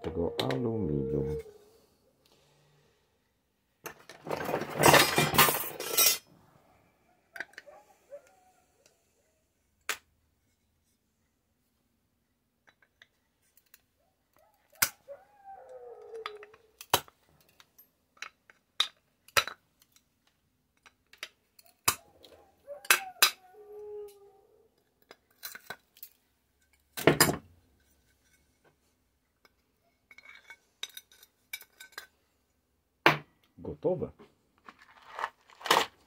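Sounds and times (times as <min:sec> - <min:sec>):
metal clicks and clinks: 0:29.4 - 0:32.2.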